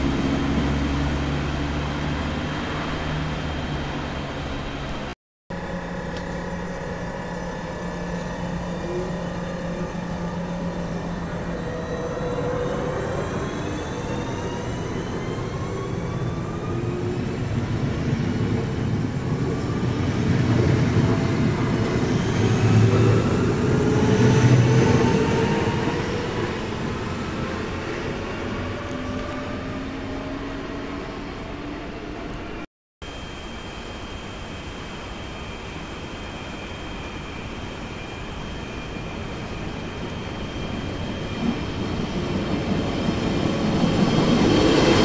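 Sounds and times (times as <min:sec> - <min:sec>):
train traction motors whining: 0:05.5 - 0:16.7.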